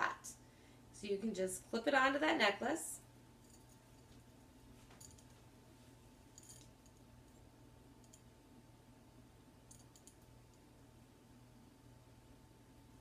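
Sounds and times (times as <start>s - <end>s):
metal jewelry clicking: 6.3s - 7.1s, 8.0s - 8.3s, 9.7s - 10.3s.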